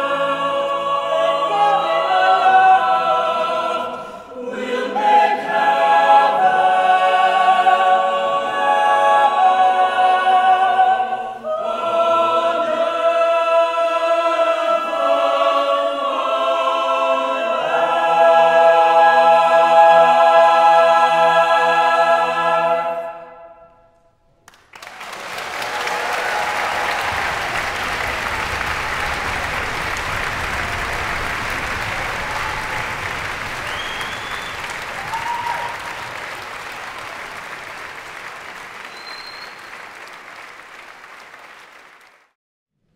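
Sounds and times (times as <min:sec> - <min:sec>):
choir singing a cappella: 0:00.0 - 0:23.8
audience applause: 0:24.5 - 0:42.3.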